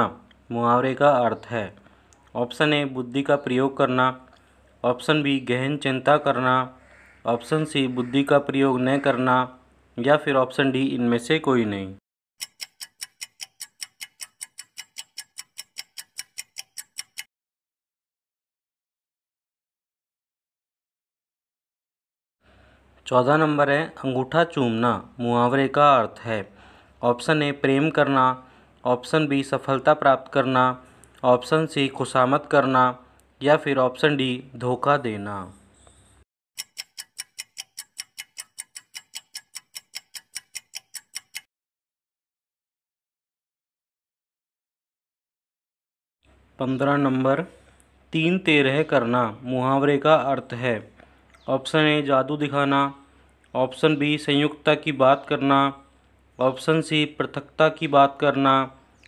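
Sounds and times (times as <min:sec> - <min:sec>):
clock-like ticking: 0:12.4 - 0:17.3, 0:36.6 - 0:41.5.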